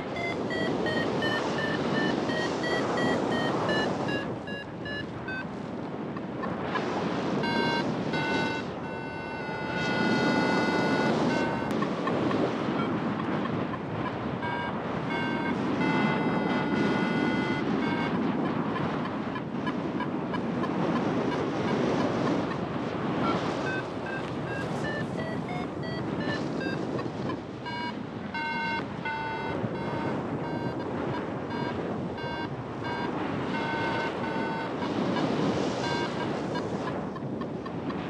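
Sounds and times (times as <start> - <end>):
steady electronic tone: 0.0 - 5.4, 7.4 - 11.7, 14.4 - 18.1, 23.6 - 26.8, 27.6 - 30.8, 31.5 - 34.9
short electronic beeps: 0.0 - 5.5, 7.4 - 12.2, 14.4 - 18.2, 23.2 - 37.3
wind on microphone: 0.0 - 38.0.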